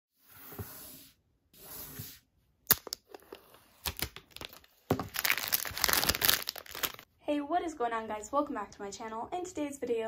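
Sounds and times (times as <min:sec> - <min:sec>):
plastic film snapping: 0:02.7 - 0:03.0, 0:03.8 - 0:07.0
plastic film crinkling: 0:03.8 - 0:07.1.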